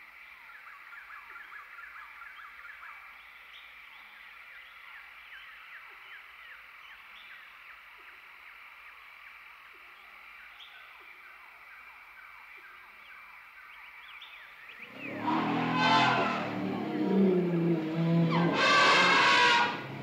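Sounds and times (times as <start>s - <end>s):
insects trilling: 14.8s - 20.0s.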